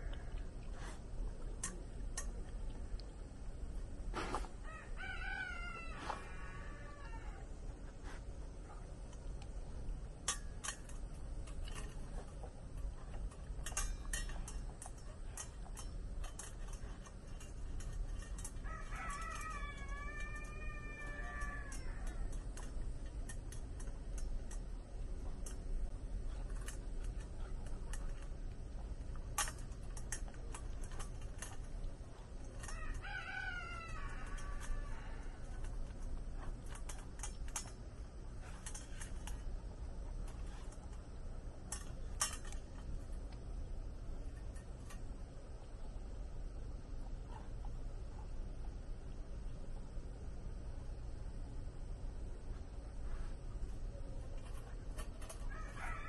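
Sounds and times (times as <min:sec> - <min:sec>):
rooster crowing: 0:04.6 - 0:07.6, 0:18.4 - 0:22.4, 0:32.6 - 0:35.8, 0:55.4 - 0:56.0
dog eating from metal bowl: 0:07.8 - 0:45.9, 0:53.1 - 0:56.0.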